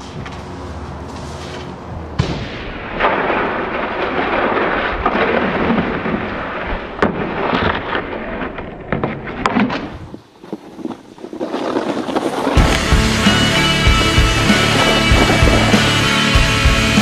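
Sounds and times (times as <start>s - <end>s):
snowboard scraping on pavement: 7.2s - 17.0s.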